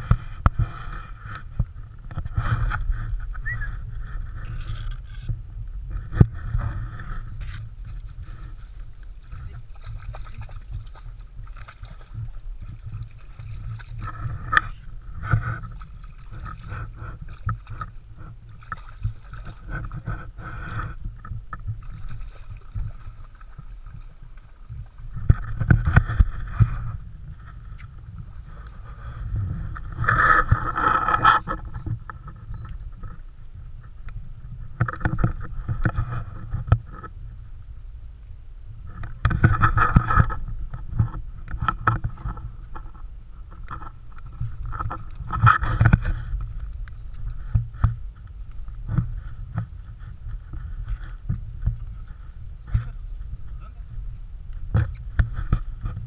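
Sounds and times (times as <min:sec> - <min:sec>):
low rumble: 0:00.0 - 0:56.0
dog splashing through water: 0:09.5 - 0:14.7.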